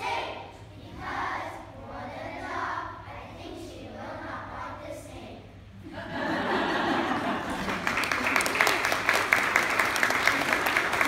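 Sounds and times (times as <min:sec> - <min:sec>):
children's choir singing: 0:00.0 - 0:05.1
audience applause: 0:07.2 - 0:11.0.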